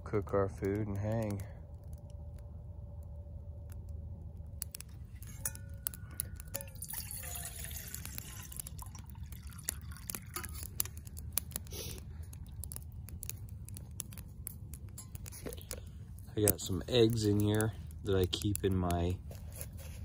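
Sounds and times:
wood fire crackling: 0:00.0 - 0:20.0
water splashing into metal pot: 0:05.2 - 0:11.0.

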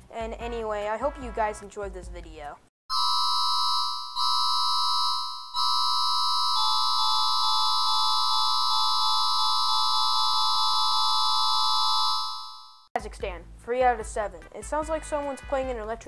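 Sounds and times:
electronic alarm chord: 0:02.9 - 0:12.9.

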